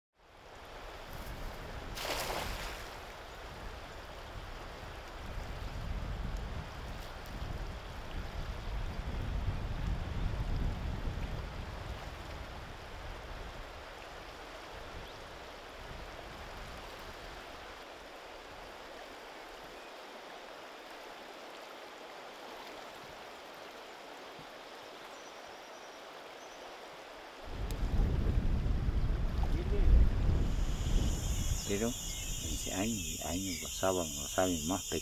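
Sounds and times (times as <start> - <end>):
river water rushing: 16.6 - 27.6.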